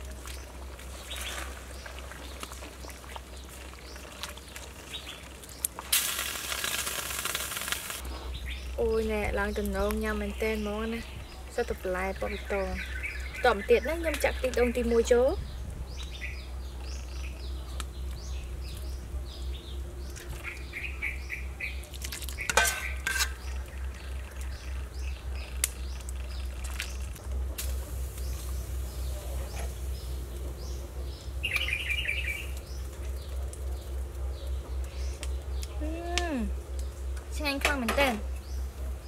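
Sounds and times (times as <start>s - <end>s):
small birds chirping: 0.2s - 39.0s
steady low rumble: 7.9s - 39.0s
metal ladle clanking in pot: 22.4s - 23.5s.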